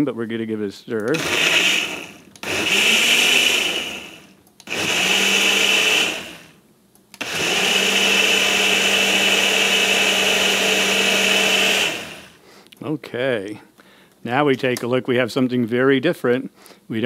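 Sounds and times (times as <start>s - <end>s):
blender motor whining: 1.1s - 6.6s, 7.2s - 12.4s.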